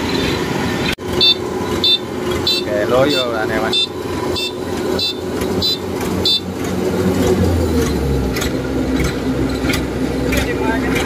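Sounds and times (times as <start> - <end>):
diesel engine running: 0.0 - 11.0
high electronic beeps: 1.2 - 6.5.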